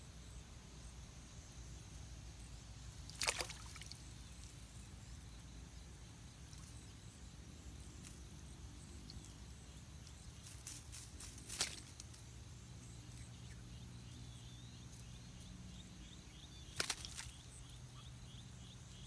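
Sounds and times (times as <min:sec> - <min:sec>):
faint low hum: 0:00.0 - 0:19.0
splash in shallow water: 0:03.1 - 0:04.1.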